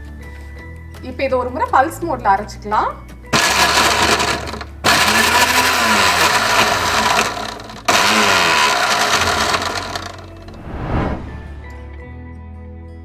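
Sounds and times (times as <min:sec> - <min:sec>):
mixer grinder motor bursts: 0:03.3 - 0:10.6.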